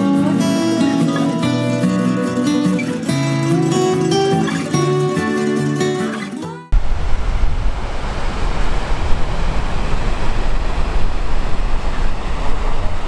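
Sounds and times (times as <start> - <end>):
ocean surf breaking: 6.7 - 13.0
wind rumbling on microphone: 6.7 - 13.0.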